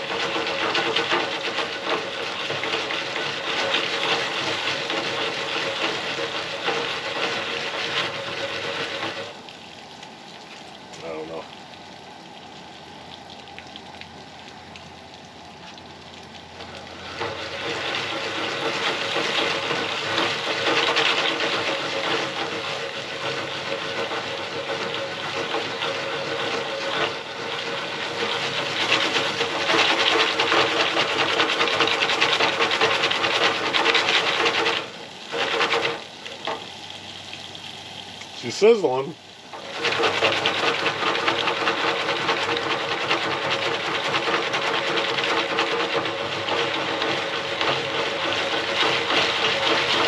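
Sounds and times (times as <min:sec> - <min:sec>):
gas burner hissing: 0:00.0 - 0:09.4, 0:16.6 - 0:50.0
pan scraping on stove grate: 0:00.0 - 0:09.4, 0:16.6 - 0:36.6, 0:39.5 - 0:50.0.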